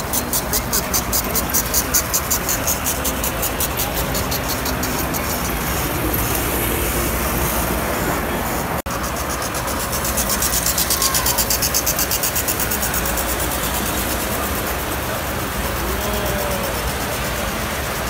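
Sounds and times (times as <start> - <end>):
toy train wheels ticking: 0.0 - 7.8, 8.9 - 18.0
toy train running rumble: 0.0 - 18.0.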